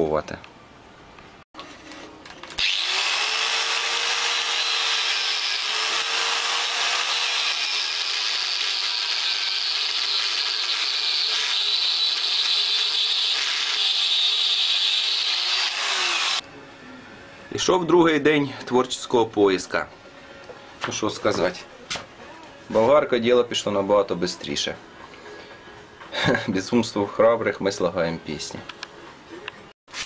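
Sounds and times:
angle grinder cutting steel: 2.6 - 16.4.

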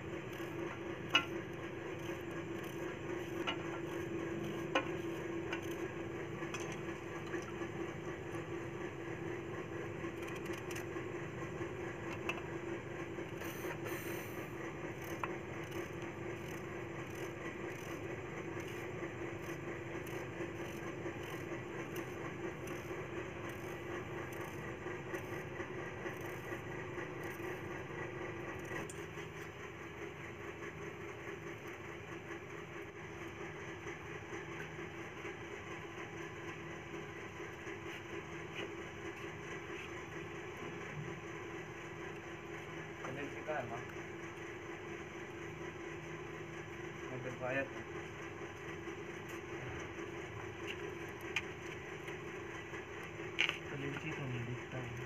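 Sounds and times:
steady hum and hiss: 0.0 - 31.8.

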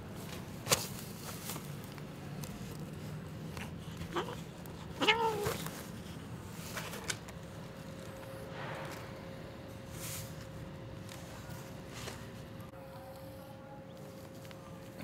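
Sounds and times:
cat meowing: 4.1 - 5.6.

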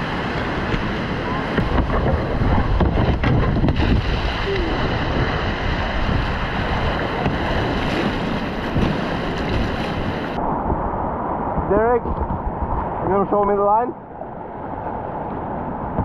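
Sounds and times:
whitewater rapids rushing: 0.0 - 10.4
wind buffeting microphone: 0.0 - 16.0
plastic kayak scraping rock: 0.4 - 10.2
kayak dropping into river: 0.6 - 10.2.

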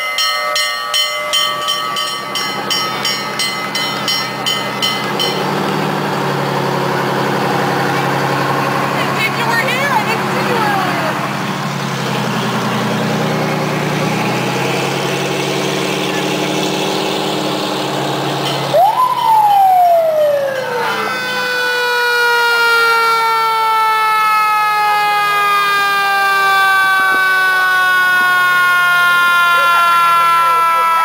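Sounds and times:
fire truck engine: 0.0 - 31.0
siren wailing: 18.6 - 31.0.

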